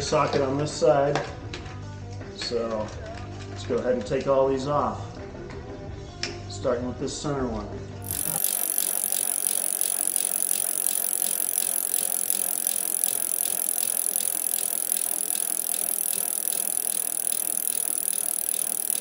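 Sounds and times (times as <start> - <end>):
ratchet wrench clicking: 8.0 - 19.0.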